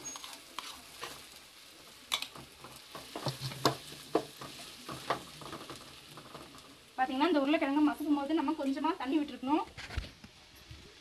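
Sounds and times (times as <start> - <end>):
faint sizzle: 0.0 - 11.0
wooden spatula stirring and knocking: 2.1 - 6.7.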